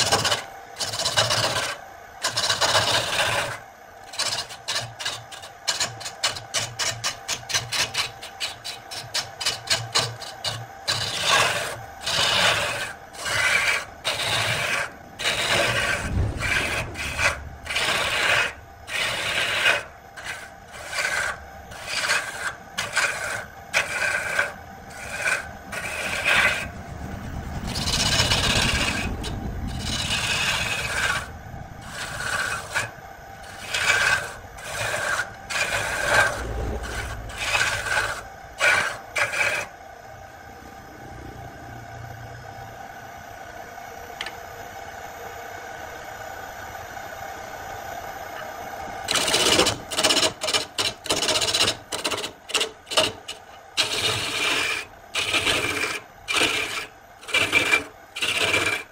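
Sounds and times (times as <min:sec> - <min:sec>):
chisel cutting wood on lathe: 0:00.0 - 0:26.8, 0:27.6 - 0:39.7, 0:49.0 - 0:58.9.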